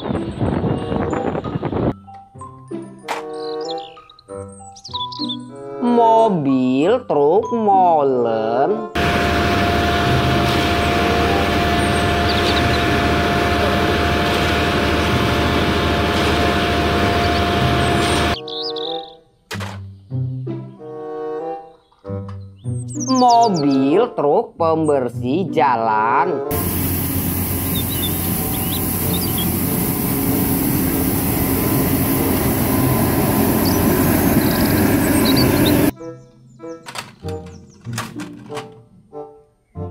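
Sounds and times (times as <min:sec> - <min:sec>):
brushes scraping asphalt: 0:09.0 - 0:18.4
steady mechanical whine: 0:09.0 - 0:18.4, 0:26.5 - 0:35.9
truck engine hum: 0:09.0 - 0:18.4, 0:26.5 - 0:35.9.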